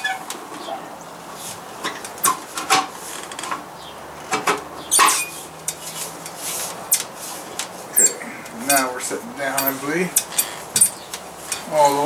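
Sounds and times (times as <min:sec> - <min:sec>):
sheet metal clinking and scraping: 0:04.3 - 0:07.2, 0:07.9 - 0:12.0.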